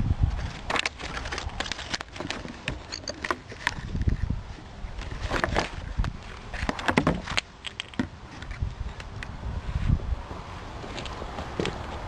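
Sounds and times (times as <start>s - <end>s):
wind rumbling on microphone: 0.0s - 12.0s
small clicks and crackles: 0.4s - 4.3s, 5.0s - 9.3s.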